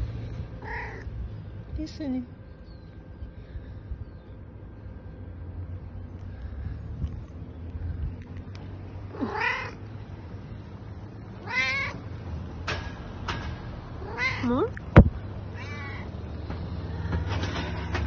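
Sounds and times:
low steady rumble: 0.0 - 17.6
cat meowing: 0.6 - 1.1, 9.1 - 9.8, 11.4 - 12.0, 14.0 - 14.8, 15.5 - 16.1.

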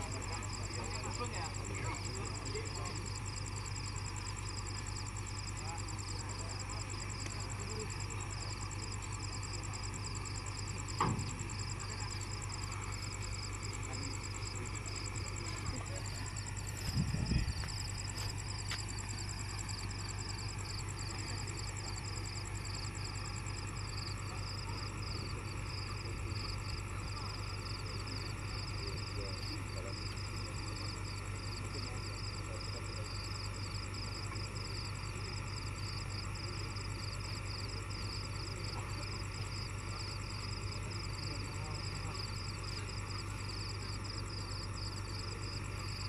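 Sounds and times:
night insects trilling: 0.0 - 46.0
loud thump: 10.8 - 11.6.

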